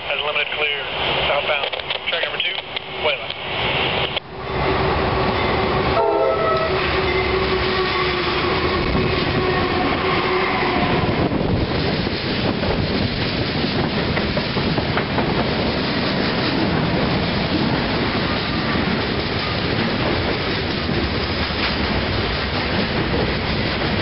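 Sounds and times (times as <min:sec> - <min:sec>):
train air horn: 0:05.9 - 0:11.2.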